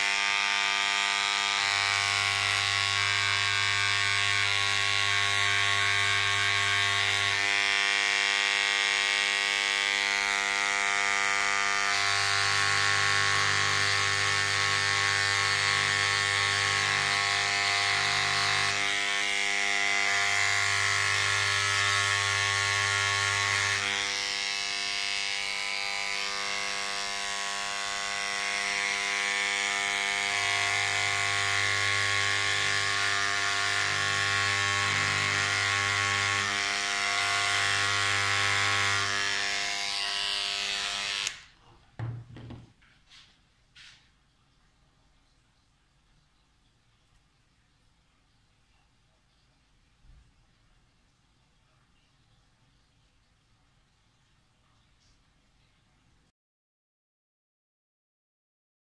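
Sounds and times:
small electric tool buzzing: 0:00.0 - 0:42.6.

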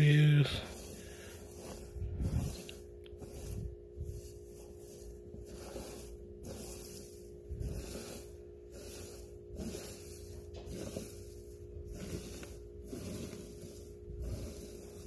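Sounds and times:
hand digging through loose substrate: 0:00.0 - 0:15.0
low electrical hum: 0:00.0 - 0:15.0.

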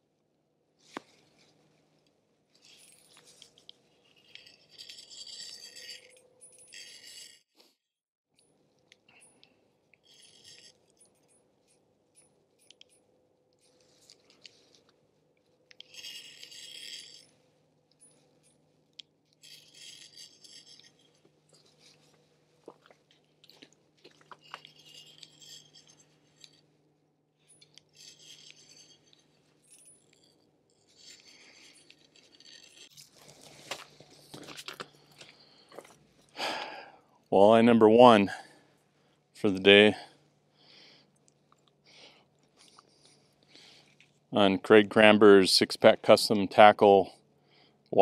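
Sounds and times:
light rattling and clinking: 0:15.7 - 0:26.7.

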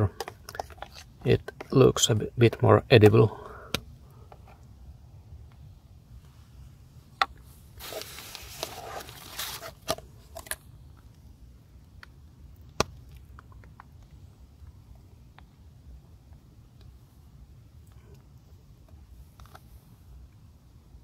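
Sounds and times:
crinkly rustling and scraping: 0:00.4 - 0:01.6, 0:07.4 - 0:10.7.

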